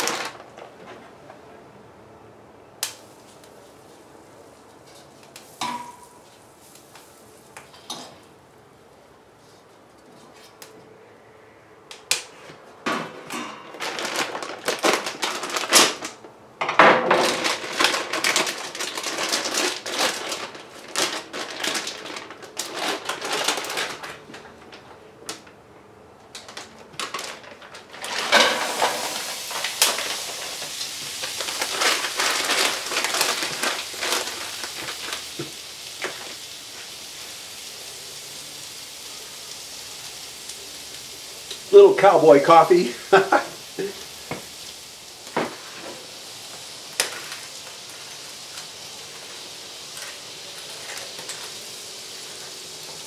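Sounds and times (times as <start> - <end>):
vegetables sizzling in a pan: 28.0 - 53.0.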